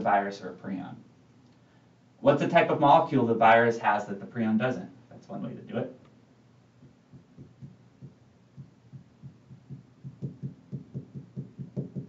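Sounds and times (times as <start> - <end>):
marker writing on whiteboard: 6.8 - 12.0.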